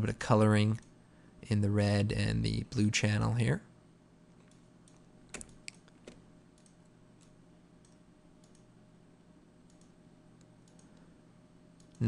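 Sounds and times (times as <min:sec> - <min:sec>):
faint steady hum: 0:00.0 - 0:12.0
computer clicks: 0:04.4 - 0:08.7, 0:09.7 - 0:11.1, 0:11.8 - 0:12.0.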